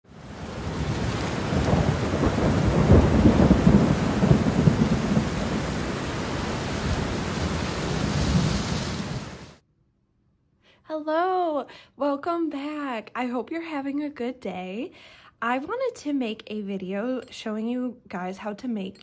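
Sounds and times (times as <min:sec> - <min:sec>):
steady rain: 0:00.1 - 0:09.6
thunder rumbling: 0:00.1 - 0:09.6.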